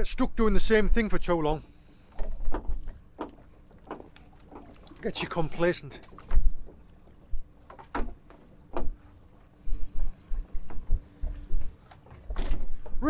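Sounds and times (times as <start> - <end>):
water splashing against boat hull: 0.9 - 9.5.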